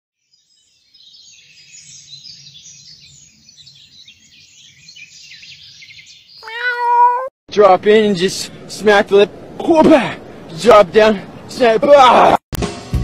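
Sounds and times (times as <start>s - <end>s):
small birds chirping: 0.2s - 7.3s.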